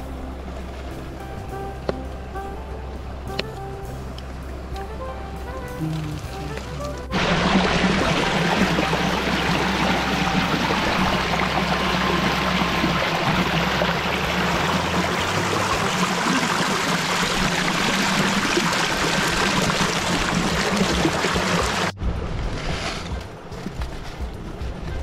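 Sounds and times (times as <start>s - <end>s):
stream rushing over rocks: 6.0s - 22.0s.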